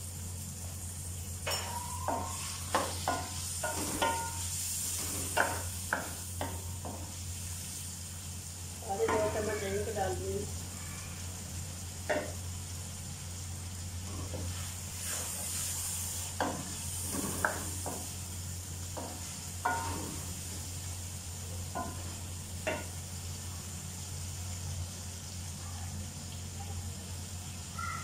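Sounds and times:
sauce sizzling in a pan: 0.0 - 28.0
wooden spoon scraping a pan: 14.0 - 18.2.

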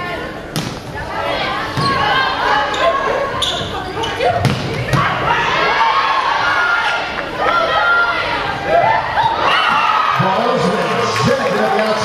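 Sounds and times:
crowd cheering and shouting: 4.8 - 12.0.

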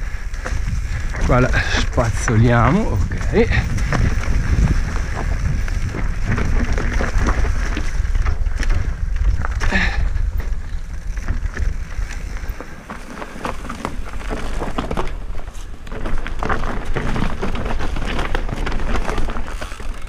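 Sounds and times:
wind on microphone: 0.0 - 12.6
bike clattering: 0.0 - 20.0
tyres crunching over stones: 0.0 - 20.0.

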